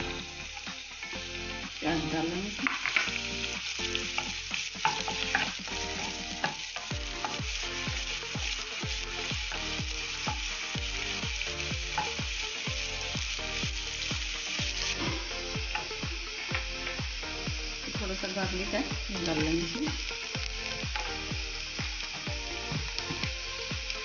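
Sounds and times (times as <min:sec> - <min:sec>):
onions sizzling in oil: 0:00.0 - 0:24.0
regular low beat: 0:00.0 - 0:24.0
wooden spatula stirring: 0:01.8 - 0:17.0.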